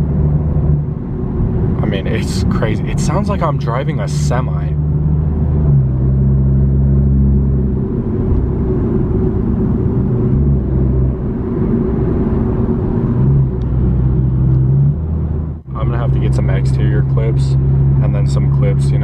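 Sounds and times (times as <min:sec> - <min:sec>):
deep car exhaust rumble: 0:00.0 - 0:19.0.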